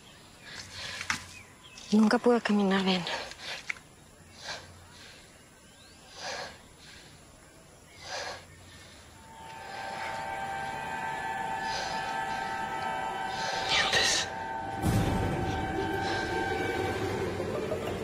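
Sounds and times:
heavy breaths: 0.3s - 1.4s, 3.0s - 14.6s
steady music drone: 9.2s - 18.0s.

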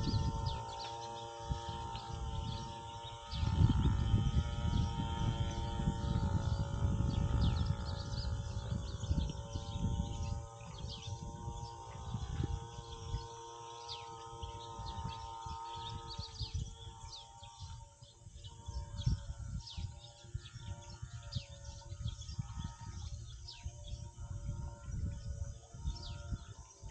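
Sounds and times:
small birds chirping: 0.0s - 26.9s
steady background hum: 0.0s - 26.9s.

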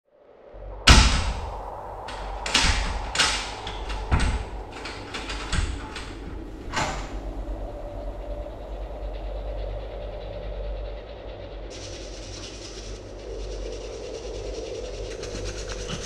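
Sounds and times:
steady low hum: 0.6s - 16.0s
door knocking and rattling: 0.9s - 7.4s, 15.3s - 16.0s.

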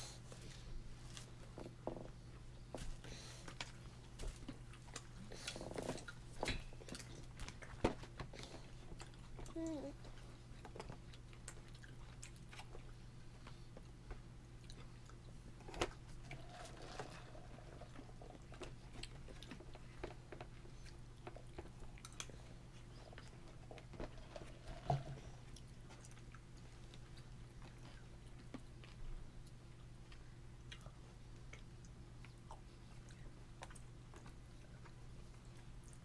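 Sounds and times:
toddler chewing: 3.2s - 13.7s.

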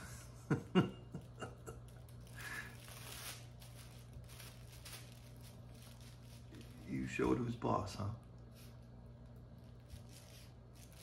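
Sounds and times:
steady low hum: 0.0s - 11.0s
fabric rustling and scratching: 2.0s - 7.1s, 9.8s - 11.0s.

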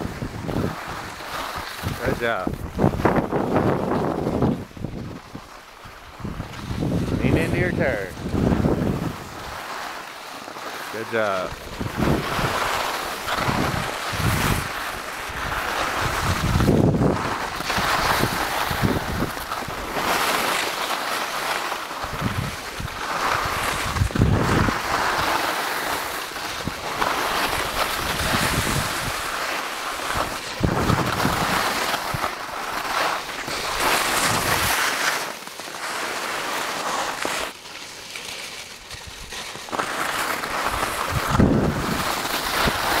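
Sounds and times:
wind buffeting microphone: 0.0s - 9.6s, 11.5s - 20.0s, 22.0s - 25.3s, 26.6s - 29.3s, 30.0s - 32.3s, 40.7s - 43.0s
skis scraping over snow: 0.0s - 43.0s.

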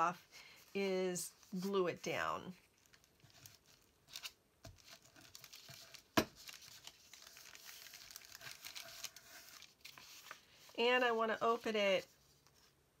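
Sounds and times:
paper rustling and crinkling: 2.5s - 12.8s.

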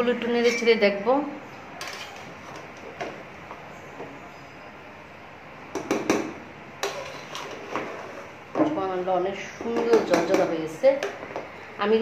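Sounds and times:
spoon knocking metal pot: 9.7s - 11.2s.

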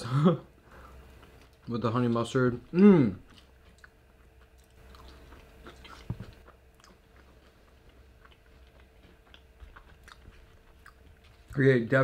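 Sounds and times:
faint steady hum: 0.0s - 12.0s
person chewing crunchy food: 3.2s - 11.6s.

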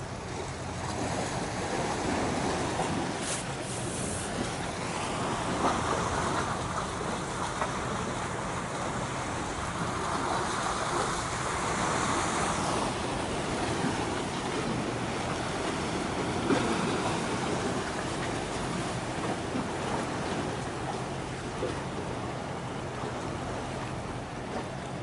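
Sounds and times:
sea waves washing: 0.0s - 25.0s.

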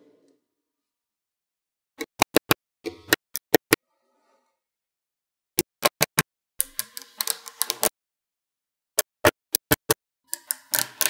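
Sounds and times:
magnetic balls clicking: 9.2s - 11.0s.

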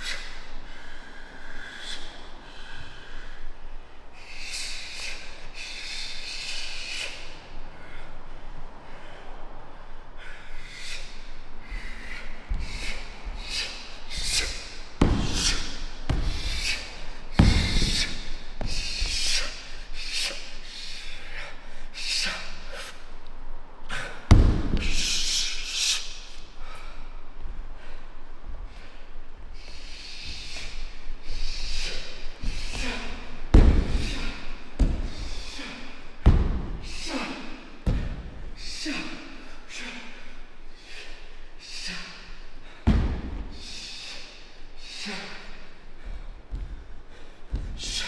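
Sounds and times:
heavy foot stamps: 17.4s - 19.2s, 24.3s - 24.9s, 32.4s - 34.2s, 34.8s - 35.2s, 36.2s - 36.8s, 42.8s - 43.5s, 47.5s - 48.0s.

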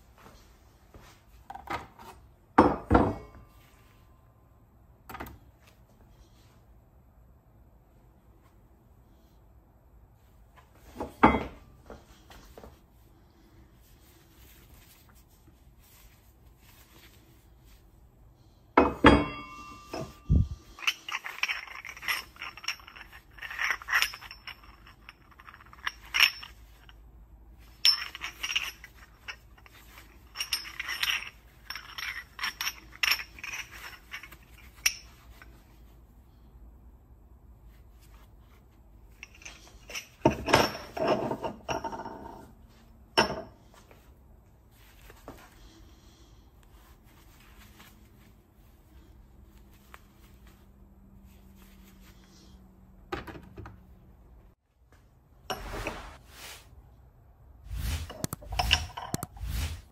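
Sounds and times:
coins clinking and scraping: 19.4s - 27.0s, 27.6s - 35.5s, 57.7s - 59.9s.

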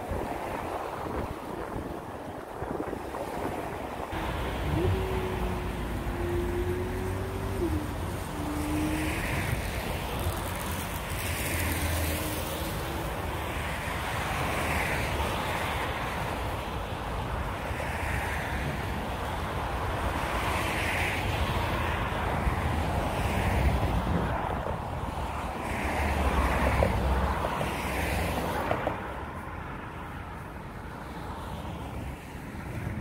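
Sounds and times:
road traffic rushing: 0.0s - 33.0s.

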